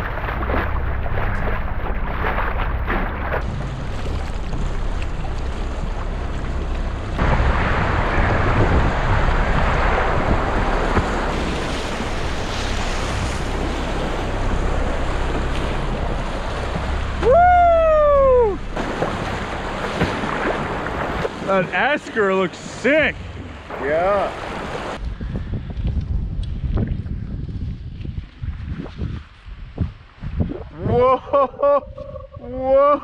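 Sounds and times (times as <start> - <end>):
wind buffeting microphone: 0.0 - 21.5, 23.2 - 32.8
water splashing against kayak: 0.0 - 25.0
loud whoop: 17.2 - 18.6, 30.8 - 33.0.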